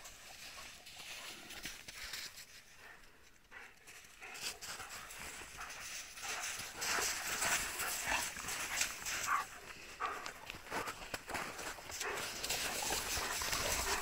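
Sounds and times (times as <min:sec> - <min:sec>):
dog paws crunching snow: 0:00.0 - 0:14.0.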